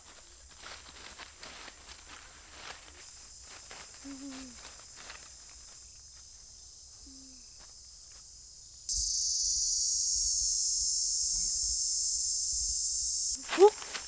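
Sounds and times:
insects shrilling: 8.7s - 14.0s.

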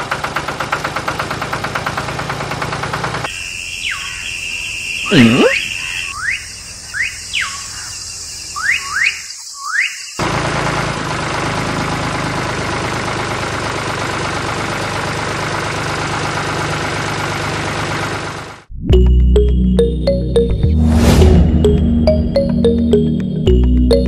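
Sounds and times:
rising whistle chirps: 3.3s - 10.2s.

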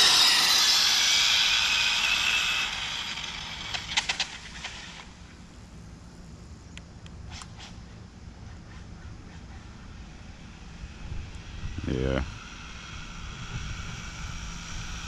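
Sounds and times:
electric rc car whining: 0.0s - 5.4s, 8.7s - 15.0s.

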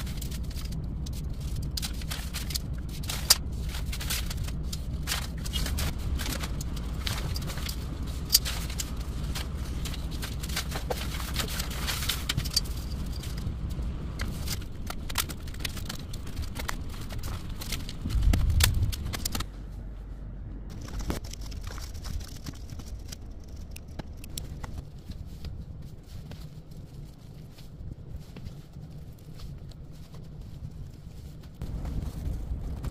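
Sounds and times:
paper sheets rustling and cut: 0.0s - 13.5s
low rumble: 0.0s - 32.9s.

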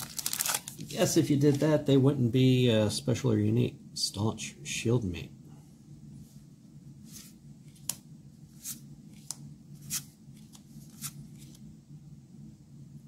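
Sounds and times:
cards flipping and sliding: 7.1s - 11.7s.

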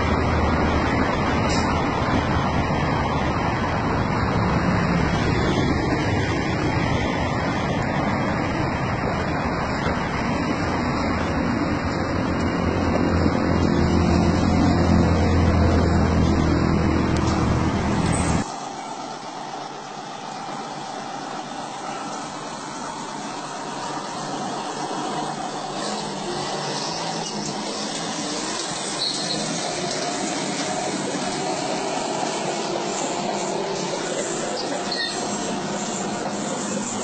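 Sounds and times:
heavy truck engine and road noise: 0.0s - 37.0s
steady hiss: 18.0s - 37.0s.

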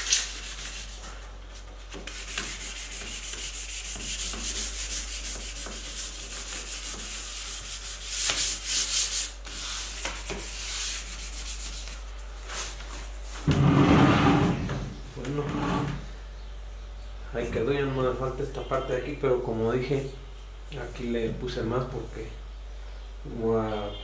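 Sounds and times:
hand sanding wood: 0.0s - 14.4s.

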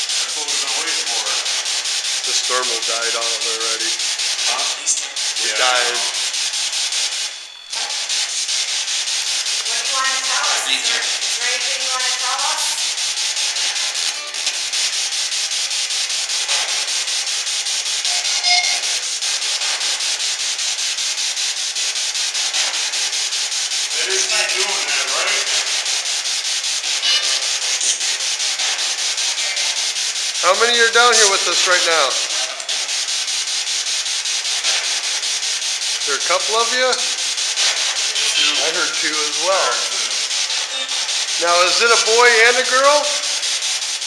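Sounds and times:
radio static hiss: 0.0s - 44.0s
voice-like snatches: 2.2s - 6.2s, 23.9s - 25.8s, 36.1s - 43.2s.

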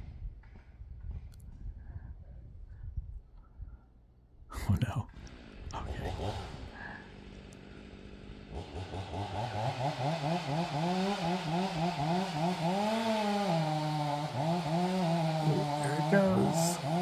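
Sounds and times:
chainsaw cutting: 5.2s - 17.0s.

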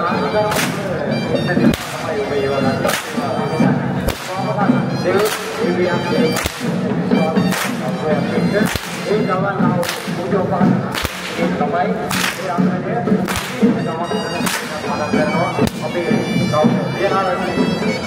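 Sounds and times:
whips cracking: 0.5s - 1.0s, 1.7s - 2.1s, 2.8s - 3.4s, 4.0s - 4.4s, 5.2s - 5.6s, 6.3s - 6.8s, 7.5s - 8.0s, 8.6s - 9.2s, 9.8s - 10.3s, 10.9s - 11.5s, 12.1s - 12.6s, 13.2s - 13.6s, 14.4s - 14.8s.

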